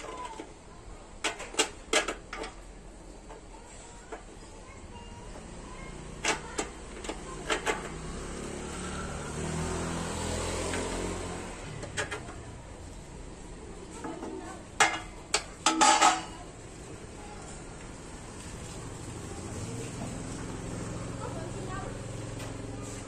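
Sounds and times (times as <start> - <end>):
metal bars clinking and clanking: 14.8 - 16.5.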